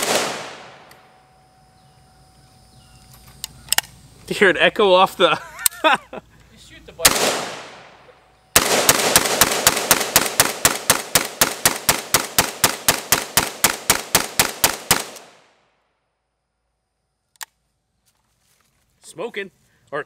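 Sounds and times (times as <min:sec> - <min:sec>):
rapid rifle shots: 0:00.0 - 0:00.8, 0:07.0 - 0:07.8, 0:08.6 - 0:15.4.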